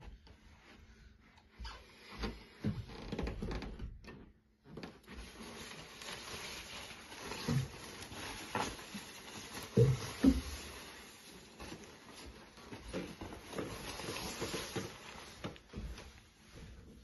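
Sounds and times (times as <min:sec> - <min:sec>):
nylon jacket rustling: 0:05.1 - 0:17.0.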